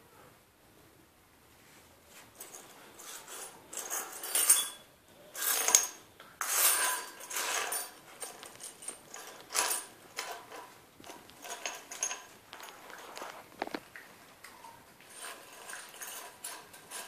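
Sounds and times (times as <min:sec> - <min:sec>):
metal keys jingling on stone tiles: 0:02.4 - 0:04.8, 0:05.4 - 0:13.2.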